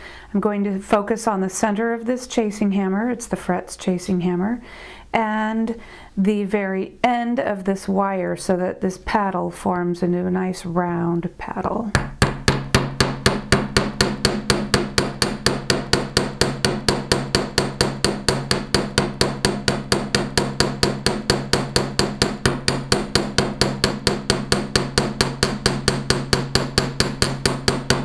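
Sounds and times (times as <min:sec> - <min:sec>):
hammer striking wire on steel block: 0:12.0 - 0:28.0.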